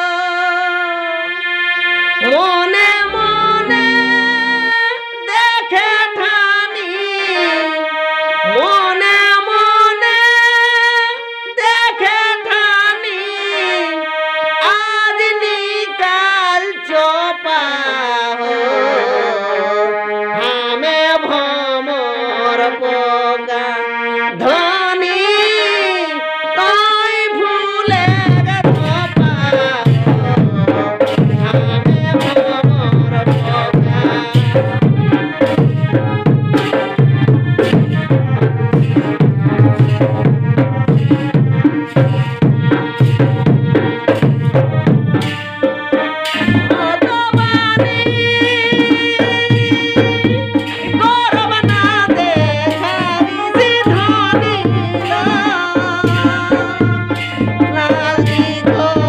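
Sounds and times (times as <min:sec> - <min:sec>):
sustained melody line: 0:02.6 - 0:05.5
hand drums: 0:03.0 - 0:05.0, 0:27.9 - 0:59.0.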